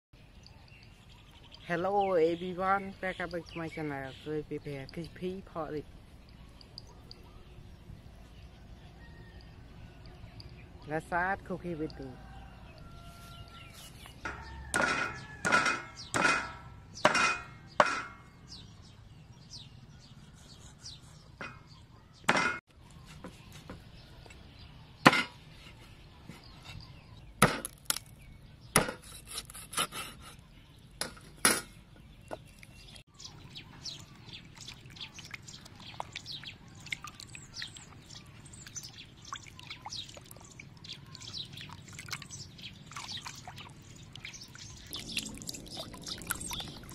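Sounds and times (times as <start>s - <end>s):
water splashing and dripping: 33.9s - 46.9s.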